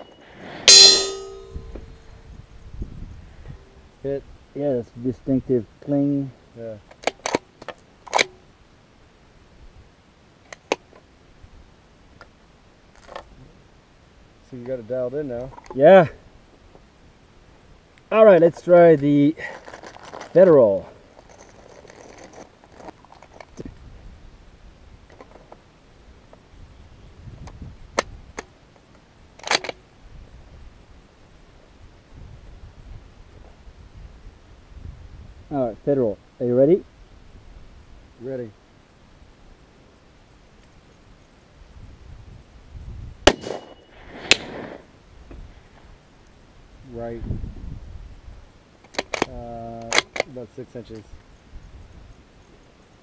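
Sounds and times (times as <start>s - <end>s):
rifle bolt metal clicks: 29.4s - 29.8s, 48.9s - 50.3s.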